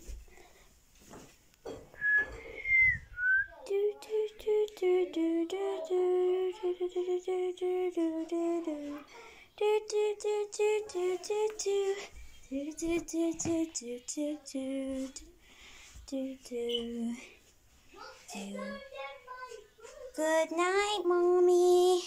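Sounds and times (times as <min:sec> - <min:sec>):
high whistled notes: 0:02.0 - 0:03.5
child singing: 0:03.4 - 0:15.4, 0:16.0 - 0:22.0.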